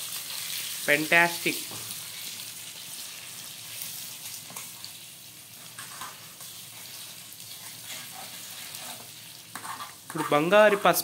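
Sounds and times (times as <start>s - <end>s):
eggs sizzling in oil: 0.0s - 11.0s
spoon scraping and tapping pan: 8.8s - 10.3s.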